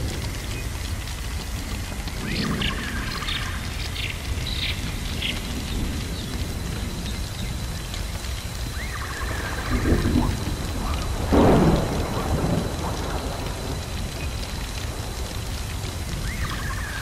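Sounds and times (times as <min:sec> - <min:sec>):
fire crackling hiss: 0:00.0 - 0:17.0
thunder crack: 0:08.7 - 0:17.0.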